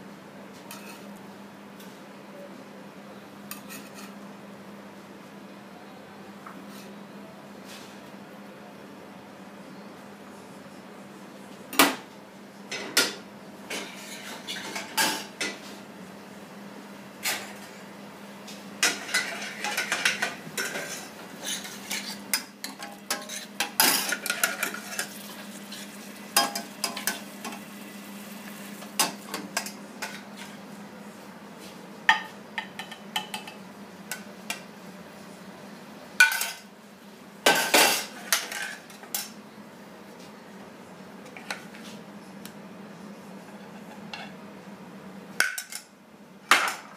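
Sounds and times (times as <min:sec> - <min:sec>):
metal kitchenware clattering: 0:18.8 - 0:25.2
stirring in a saucepan: 0:18.9 - 0:27.3.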